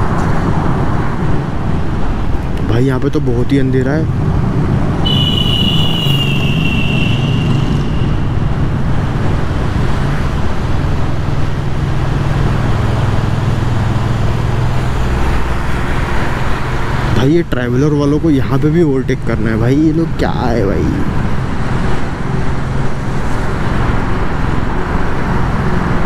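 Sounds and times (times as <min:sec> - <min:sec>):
road and wind rush: 0:00.0 - 0:26.0
thin high whine: 0:05.1 - 0:08.6.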